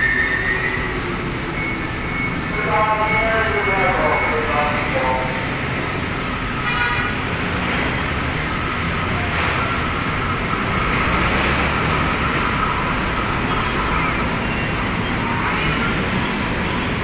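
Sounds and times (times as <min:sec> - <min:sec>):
short pitched tone: 0:00.0 - 0:04.8
train humming and rumbling: 0:00.0 - 0:17.0.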